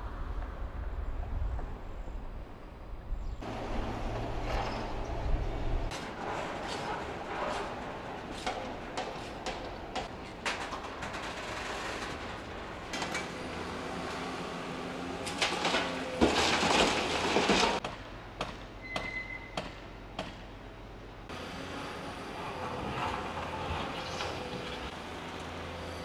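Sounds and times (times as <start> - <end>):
rail vehicles running: 3.4 - 26.0.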